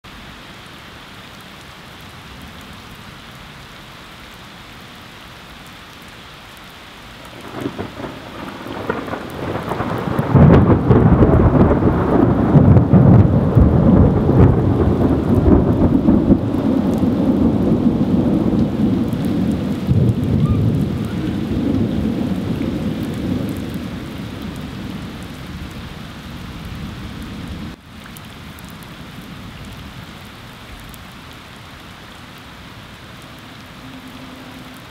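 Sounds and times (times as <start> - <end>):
heavy rain pouring: 0.0 - 34.9
thunder rumbling: 7.2 - 27.8.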